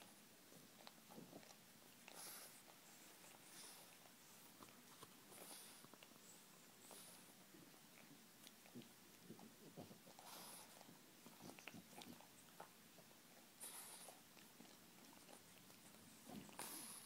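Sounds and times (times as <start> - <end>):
dog licking and chewing paw: 0.0 - 17.0.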